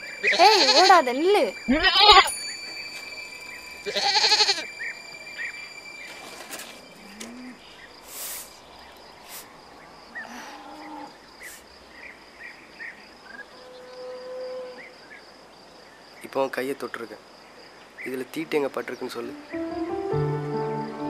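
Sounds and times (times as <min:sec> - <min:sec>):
high insect drone: 0:00.0 - 0:21.0
brief hisses: 0:08.0 - 0:09.5, 0:11.4 - 0:11.7.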